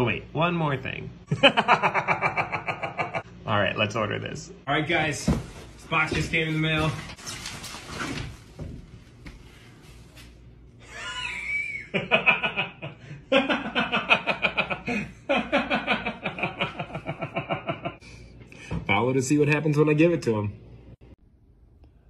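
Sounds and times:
man laughing hard: 0:01.3 - 0:03.2, 0:10.8 - 0:18.0
packing rustling in cardboard box: 0:05.3 - 0:09.2.

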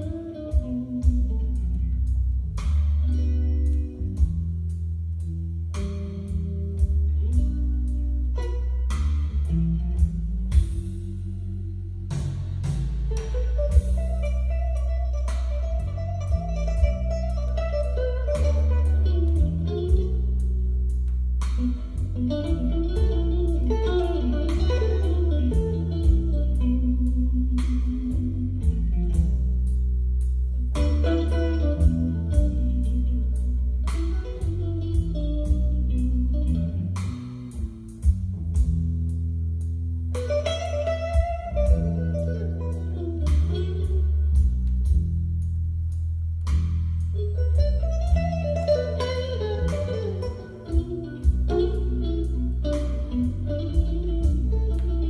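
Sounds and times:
music from hi-fi speakers: 0:00.0 - 0:55.0.

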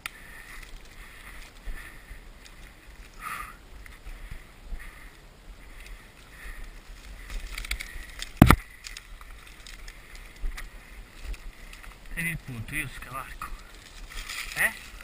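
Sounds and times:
twigs snapping: 0:00.0 - 0:03.2, 0:06.6 - 0:12.2, 0:13.4 - 0:15.0
rustling dry vegetation: 0:00.0 - 0:15.0
sharp crack: 0:07.5 - 0:09.1.

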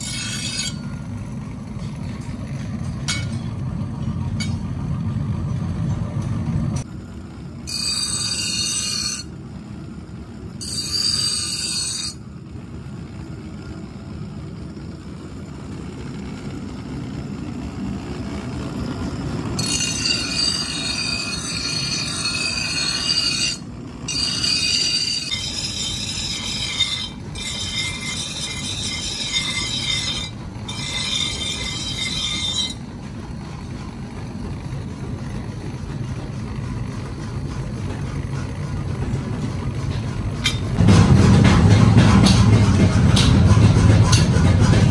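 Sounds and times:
steel blade grinding screech: 0:00.0 - 0:01.0, 0:07.6 - 0:09.3, 0:10.6 - 0:12.2, 0:19.6 - 0:32.8
bench grinder humming: 0:18.0 - 0:32.9.

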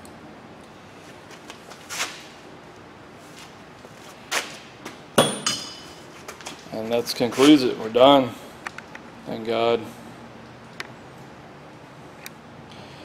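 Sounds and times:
metal tool clink: 0:05.2 - 0:06.0.

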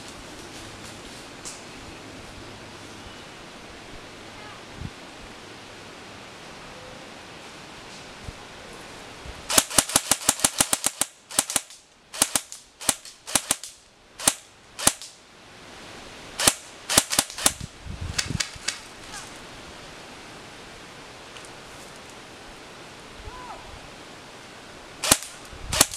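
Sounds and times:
airsoft gun shots: 0:09.5 - 0:15.1, 0:16.4 - 0:17.6, 0:25.0 - 0:25.9.

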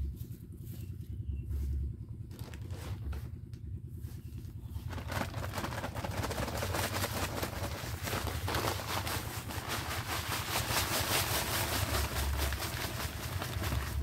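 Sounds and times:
low steady hum: 0:00.0 - 0:14.0
paper sack crinkling: 0:02.3 - 0:03.3, 0:04.7 - 0:14.0
powder pouring onto sand: 0:05.2 - 0:14.0.

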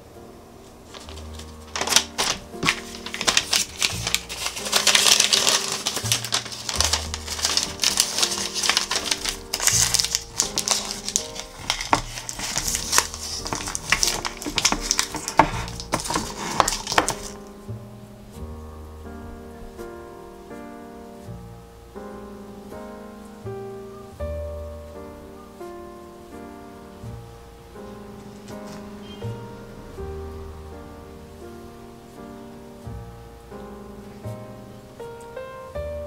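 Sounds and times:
background music: 0:00.0 - 0:36.0
paper crinkling and rustling: 0:00.8 - 0:17.5, 0:28.2 - 0:29.2.

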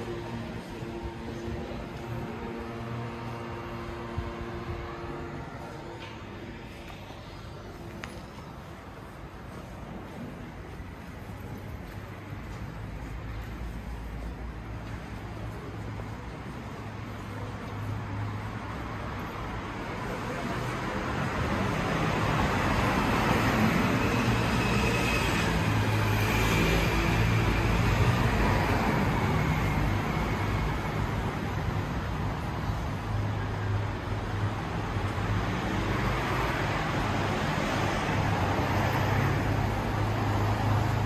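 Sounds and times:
vehicles hissing on wet road: 0:21.6 - 0:33.2.

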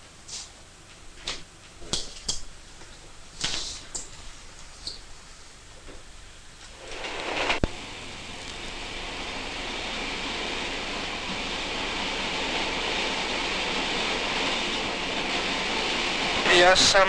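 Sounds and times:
steady rushing noise: 0:06.7 - 0:17.0.

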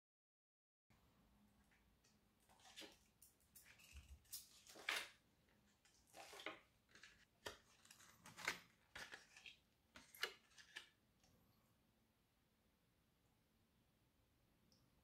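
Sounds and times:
gelatine sheets crinkling: 0:03.7 - 0:11.0.

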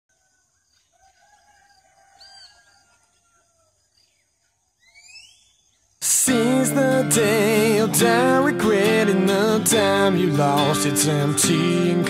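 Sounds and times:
faint whistled birdsong: 0:00.2 - 0:06.0.

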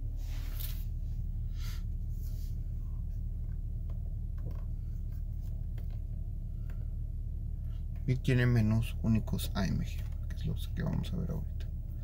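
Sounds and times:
car engine idling: 0:00.0 - 0:12.0
faint clicks and rubs: 0:02.0 - 0:07.0.

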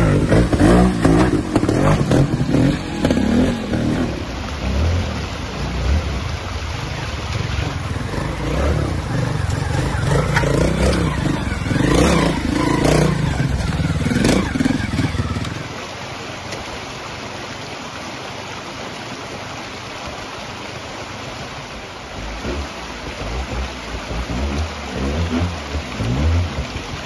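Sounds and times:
motorcycle engine revving: 0:00.0 - 0:06.4, 0:07.4 - 0:15.6, 0:22.3 - 0:27.0
steady rushing noise: 0:00.0 - 0:17.1.

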